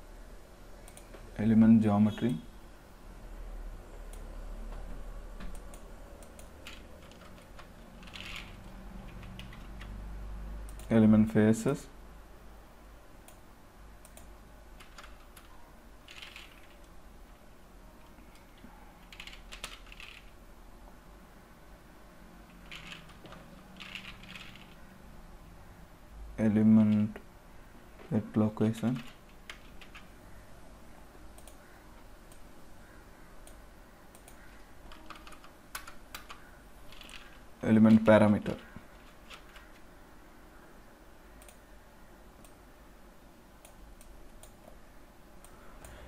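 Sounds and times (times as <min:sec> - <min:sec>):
faint keyboard typing: 0:00.8 - 0:02.4, 0:03.9 - 0:10.0, 0:10.6 - 0:11.1, 0:13.2 - 0:17.4, 0:18.0 - 0:20.4, 0:22.4 - 0:25.0, 0:26.4 - 0:27.3, 0:28.0 - 0:30.4, 0:31.2 - 0:40.0, 0:41.3 - 0:41.7, 0:43.6 - 0:44.8.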